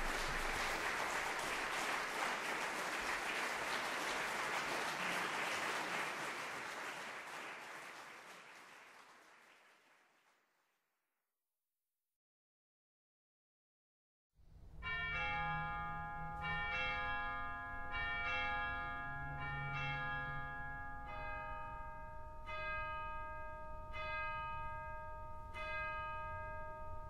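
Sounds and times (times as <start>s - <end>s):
bells ringing: 0.0s - 6.4s, 14.8s - 27.0s.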